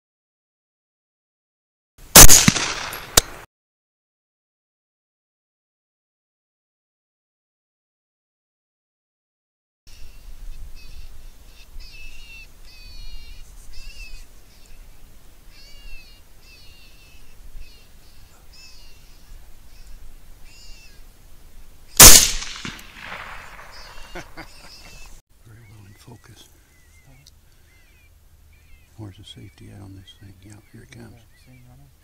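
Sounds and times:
rifle shot: 2.1 - 3.5, 22.0 - 24.3.

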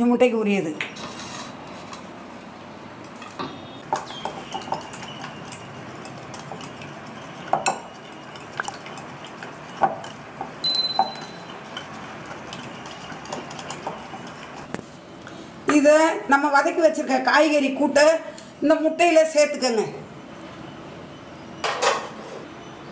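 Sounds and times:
spoon clinking against bowl: 9.7 - 11.9.

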